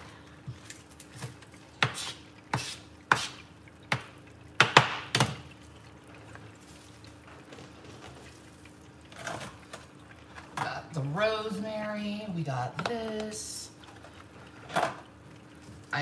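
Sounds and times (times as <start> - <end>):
knife chopping on cutting board: 1.8 - 3.3.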